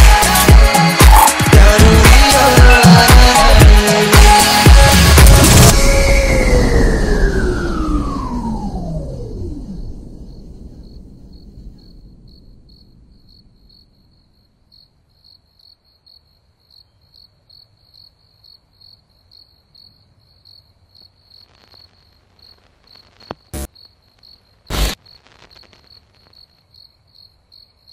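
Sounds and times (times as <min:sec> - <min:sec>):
low rumble: 0:04.7 - 0:14.6
cricket chirping: 0:09.6 - 0:27.9.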